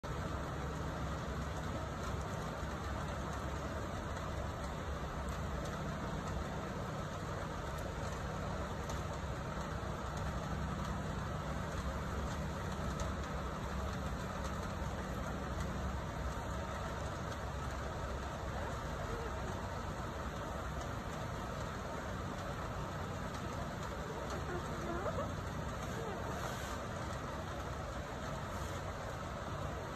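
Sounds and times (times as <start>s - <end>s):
faint hiss: 0.0s - 29.9s
low mechanical hum: 0.0s - 29.9s.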